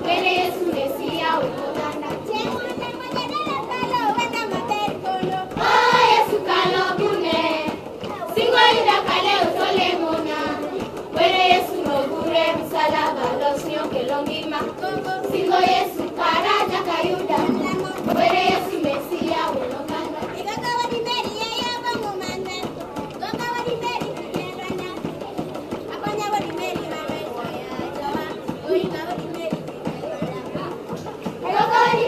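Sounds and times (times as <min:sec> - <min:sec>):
children singing in unison: 0:00.0 - 0:03.3, 0:03.9 - 0:21.4, 0:31.4 - 0:32.0.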